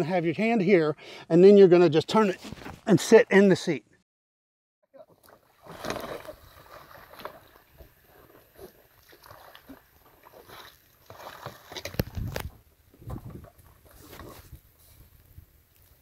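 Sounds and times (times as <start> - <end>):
water splashing against kayak: 5.1 - 15.0.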